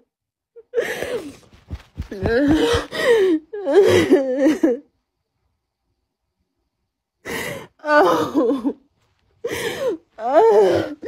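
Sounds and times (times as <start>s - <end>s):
woman sobbing: 0.6s - 1.5s, 2.1s - 4.9s, 7.3s - 11.0s.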